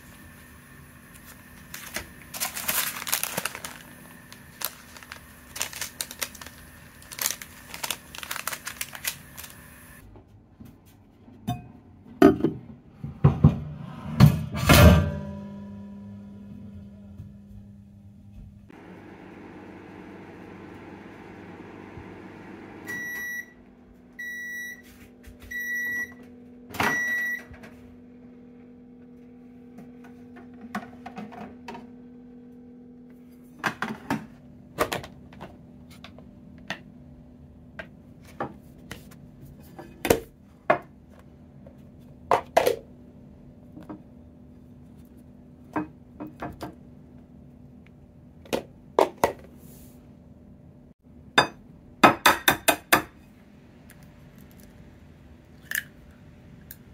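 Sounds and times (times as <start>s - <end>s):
microwave oven beeping: 18.8s - 30.0s.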